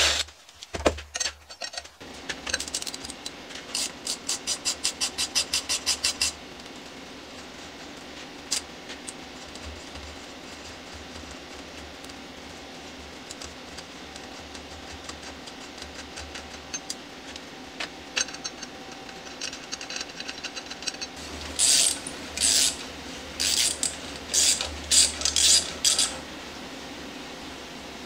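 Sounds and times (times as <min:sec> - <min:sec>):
ratchet wrench clicking: 0:21.6 - 0:22.8, 0:23.4 - 0:26.1.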